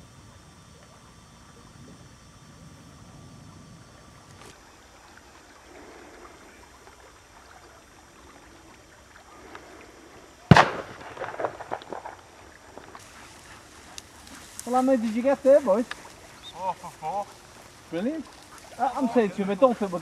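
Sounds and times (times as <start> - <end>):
shotgun shot: 10.5 - 12.2.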